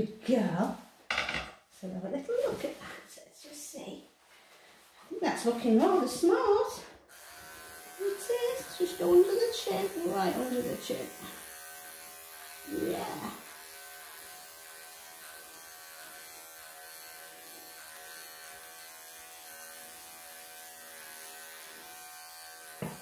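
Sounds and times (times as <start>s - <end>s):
electric clippers buzzing: 7.1s - 23.0s.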